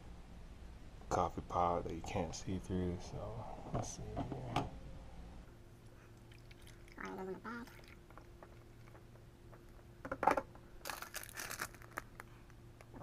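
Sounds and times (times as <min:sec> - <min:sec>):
faint steady hum: 0:00.0 - 0:13.0
plastic packet crinkling: 0:10.8 - 0:12.5.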